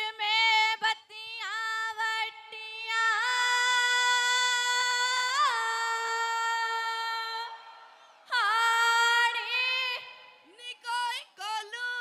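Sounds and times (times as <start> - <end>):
woman singing unaccompanied: 0.0 - 7.5, 8.3 - 12.0.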